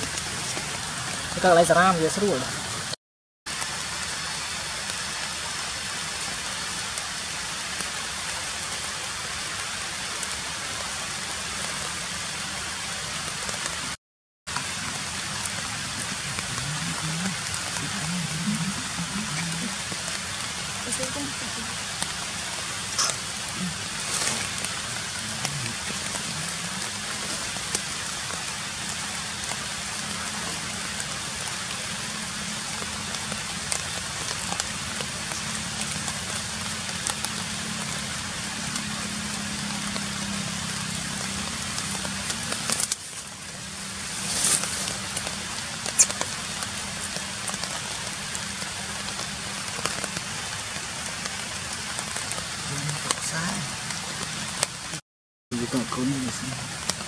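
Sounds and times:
steady noisy hiss: 0.0s - 57.0s
crackles and clicks: 13.3s - 55.0s.

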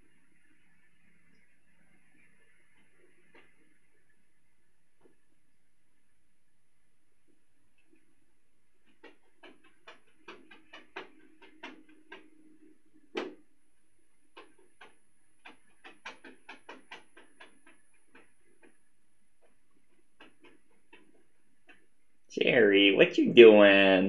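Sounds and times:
kitten paws tapping on plastic: 8.8s - 13.5s, 14.3s - 22.0s.

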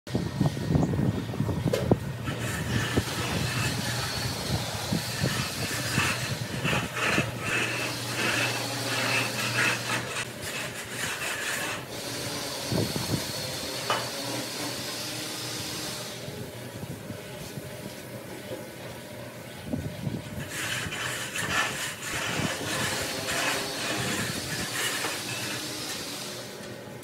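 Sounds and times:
bar scraping wet screed: 2.2s - 13.2s, 20.4s - 26.4s.

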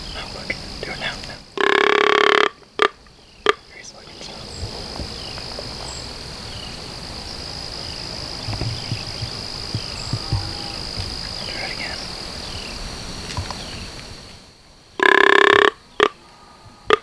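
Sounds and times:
high-pitched insect trill: 0.0s - 17.0s
bird chirps: 7.8s - 12.8s
soft low thumps: 8.3s - 11.5s.

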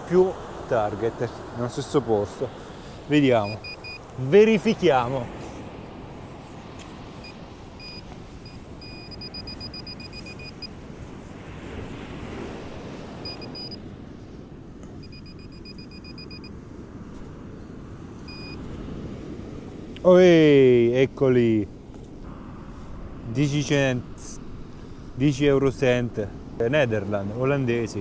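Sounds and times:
surf rushing: 0.0s - 28.0s
wind: 0.0s - 28.0s
metal detector beeping: 3.4s - 4.1s, 7.2s - 10.8s, 13.2s - 13.8s, 15.0s - 16.5s, 18.3s - 18.6s.

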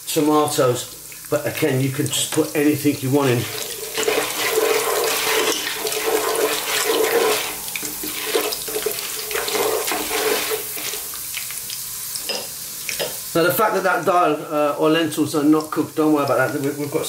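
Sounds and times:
food sizzling in hot oil: 0.0s - 17.0s
wooden spoon stirring: 3.2s - 11.4s.

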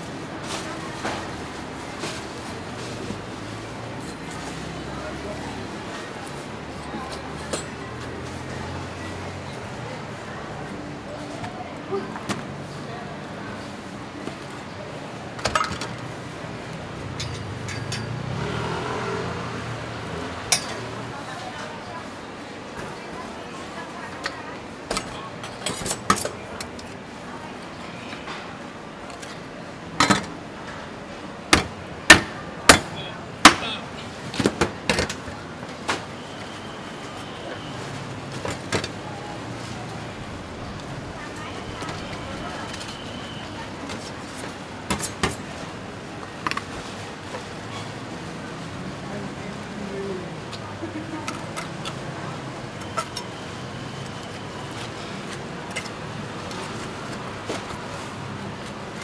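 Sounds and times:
market background noise: 0.0s - 59.0s
meat cleaver chopping: 31.6s - 33.6s.

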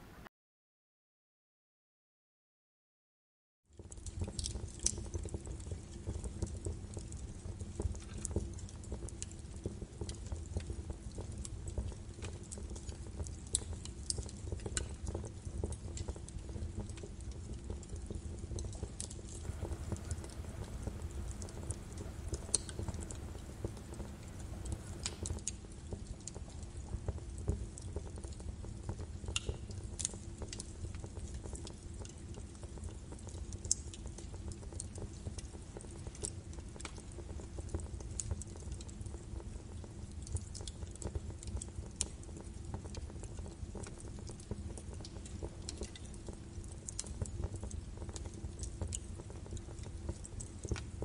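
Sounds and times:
faint hum: 0.0s - 0.3s, 19.4s - 25.4s
low rumble: 19.4s - 25.4s.

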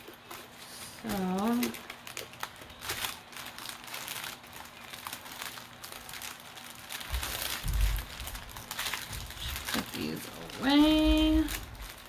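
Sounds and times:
plastic bags crinkling: 0.0s - 12.0s
dull low thuds: 7.1s - 8.4s.

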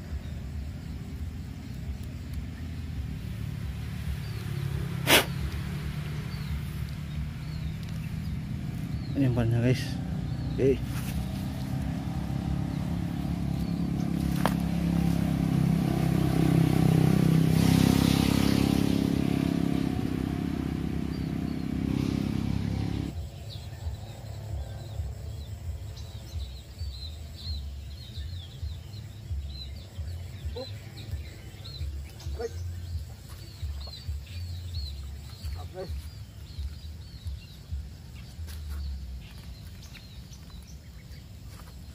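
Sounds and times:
birds chirping: 0.0s - 41.9s
low rumbling background: 0.0s - 41.9s
motor engine running: 0.2s - 23.2s.

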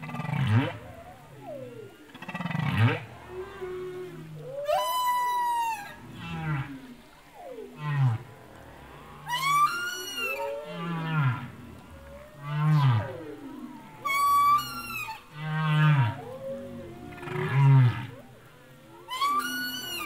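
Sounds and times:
whale-like gliding calls: 0.0s - 20.0s
deep falling tones: 5.8s - 19.1s.

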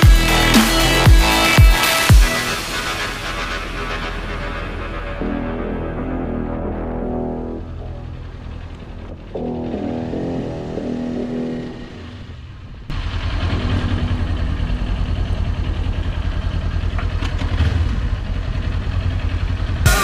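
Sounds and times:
music with held tones: 0.0s - 12.4s
motorcycle engine at low revs: 0.0s - 20.0s.

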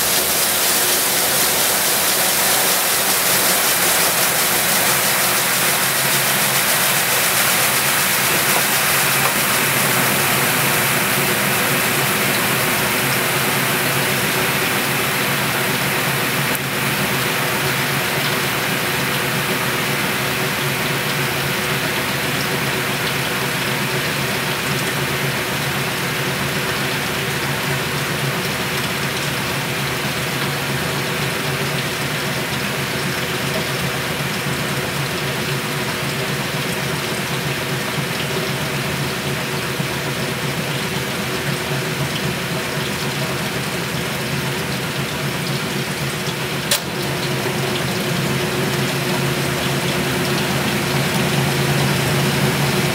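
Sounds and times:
washer motor hum: 0.0s - 52.9s
water rushing through tub: 0.0s - 52.9s
sharp click: 46.7s - 46.9s.

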